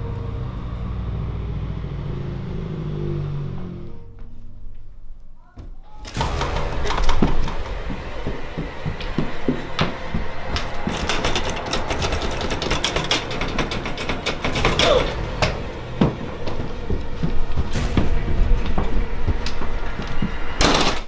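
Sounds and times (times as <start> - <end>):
steady low rumble: 6.2 - 21.0.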